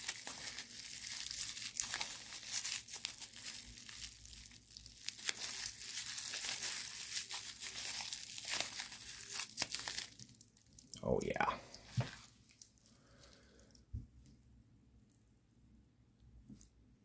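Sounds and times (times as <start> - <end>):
plastic wrap crinkling: 0.0 - 13.8.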